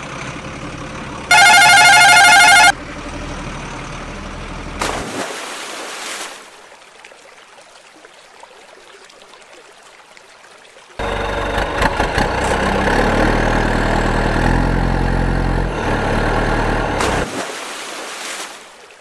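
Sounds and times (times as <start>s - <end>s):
truck engine sound: 0.0s - 5.0s, 11.0s - 17.4s
warbling ringing tone: 1.3s - 2.7s
toy truck splashing into water: 4.8s - 6.5s
faint water noise: 4.8s - 11.4s, 16.3s - 19.0s.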